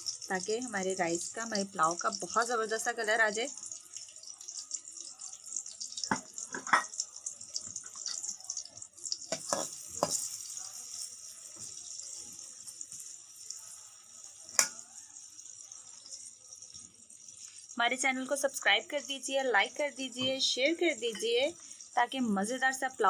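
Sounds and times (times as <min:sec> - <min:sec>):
onions sizzling in hot oil: 0:00.0 - 0:23.0
metal spatula scraping a pot: 0:07.6 - 0:08.4, 0:09.2 - 0:13.8.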